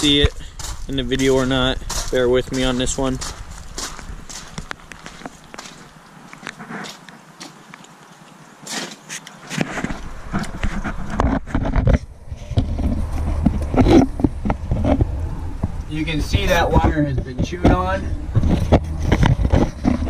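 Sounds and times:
footsteps: 0:00.0 - 0:20.0
phone handling rumble and scrapes: 0:08.9 - 0:20.0.

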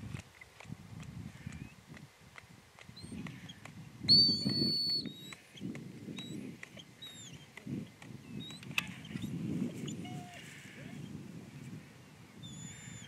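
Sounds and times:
low rumble of wind: 0:00.0 - 0:13.0
dog whistle: 0:04.1 - 0:05.4.

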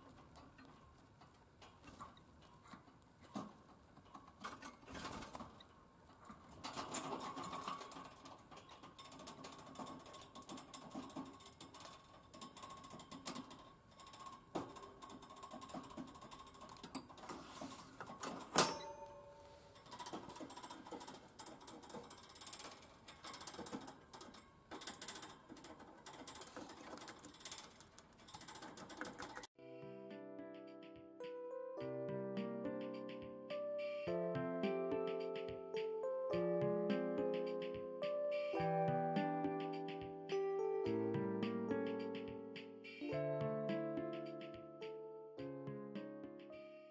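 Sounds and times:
clicking and rattling of wire cage: 0:00.0 - 0:29.5
faint steady tone: 0:18.6 - 0:19.9.

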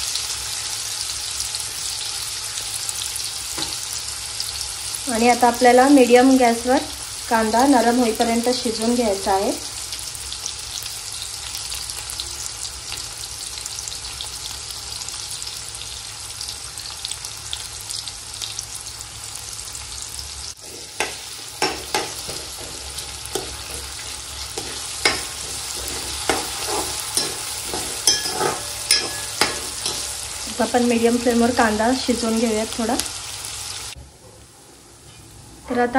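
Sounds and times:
onion sizzling in oil: 0:00.0 - 0:35.9
stirring scraping a pan: 0:20.6 - 0:30.4.

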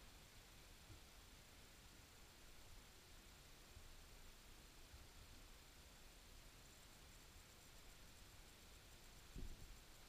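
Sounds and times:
soft low bump: 0:09.4 - 0:09.6.

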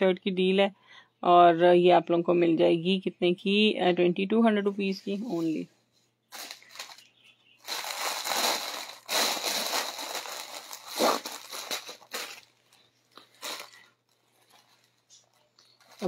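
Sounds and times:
plastic bag crinkling: 0:06.3 - 0:16.0.

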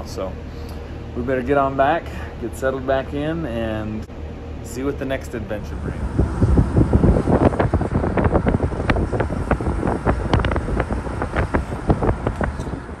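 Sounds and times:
vehicle rumble: 0:00.0 - 0:13.0
wind buffeting microphone: 0:05.4 - 0:13.0.

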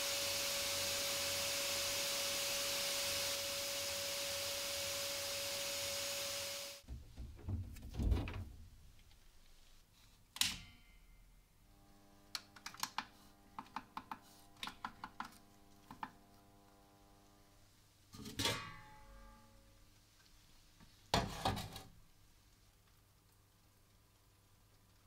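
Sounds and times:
sandblasting nozzle hissing: 0:00.0 - 0:06.8
faint electrical hum: 0:06.8 - 0:25.0.

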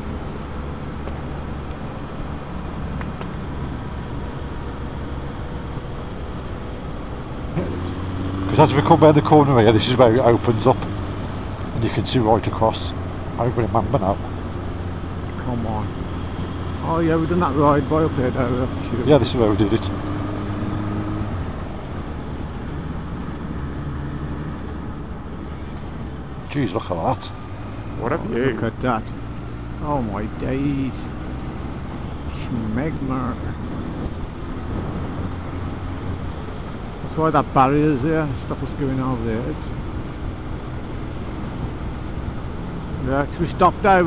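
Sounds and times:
motorcycle engine cruising: 0:00.0 - 0:44.0
road noise: 0:00.0 - 0:44.0
wind rushing over microphone: 0:33.5 - 0:36.9.

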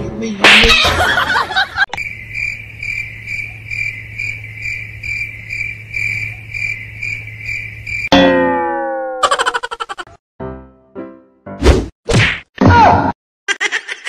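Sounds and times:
cricket chirping: 0:01.8 - 0:08.1.

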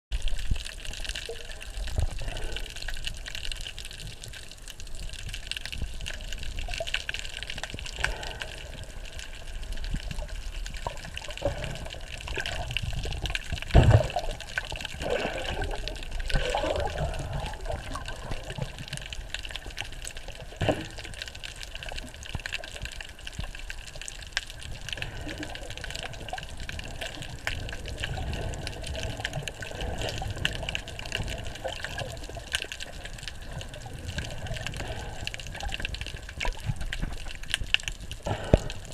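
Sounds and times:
muffled underwater wash: 0:00.1 - 0:38.9.

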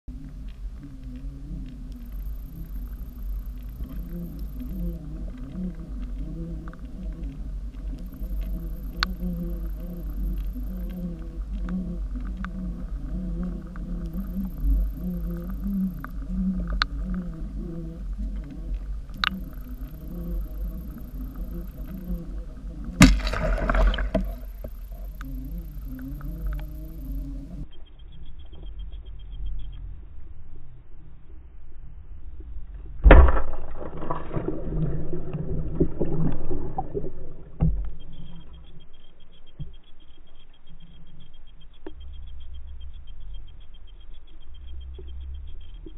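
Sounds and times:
underwater low rumble: 0:00.1 - 0:45.9
water churning: 0:11.6 - 0:27.6
sharp clicks: 0:18.4 - 0:22.2, 0:23.0 - 0:29.8.

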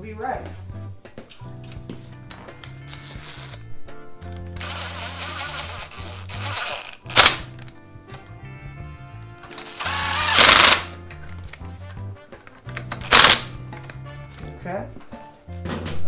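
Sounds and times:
background music with bass: 0:00.0 - 0:16.0
ratchet wrench clicking: 0:04.6 - 0:07.5, 0:09.6 - 0:10.9, 0:13.0 - 0:13.5.

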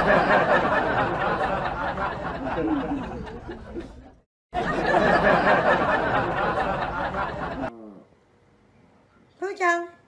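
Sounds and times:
group laughing and chattering: 0:00.0 - 0:07.7.

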